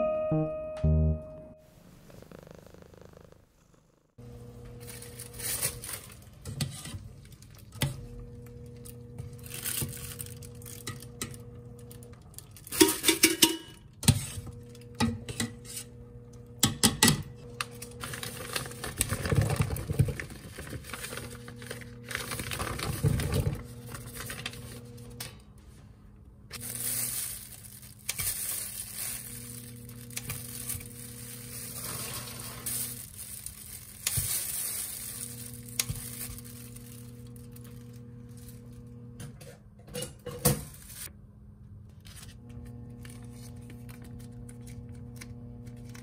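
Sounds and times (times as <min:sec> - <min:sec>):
utensils clinking against pans: 0:12.7 - 0:14.4.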